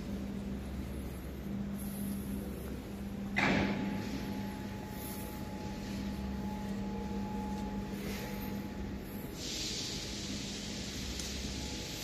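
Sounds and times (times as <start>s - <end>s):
steady low hum: 0.0s - 12.0s
hiss: 9.1s - 12.0s.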